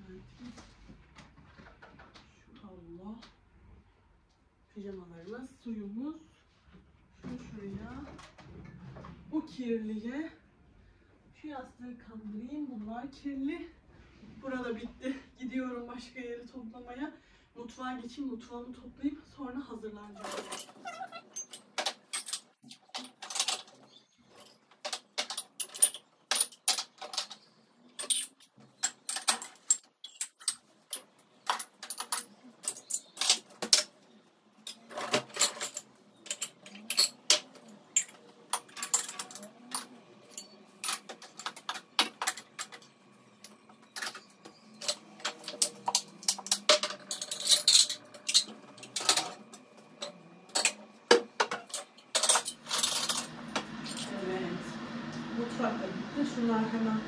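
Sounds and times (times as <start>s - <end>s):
dishes and glasses clinking: 20.2s - 27.4s, 34.7s - 54.1s.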